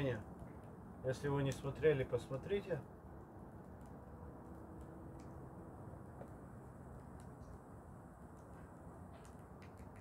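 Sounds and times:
low steady background noise: 0.0s - 10.0s
wood fire crackling: 0.0s - 10.0s.

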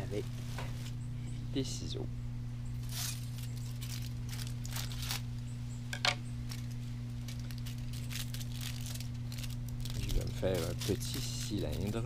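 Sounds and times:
low electrical hum: 0.0s - 12.0s
material crinkling and rustling: 6.5s - 12.0s.

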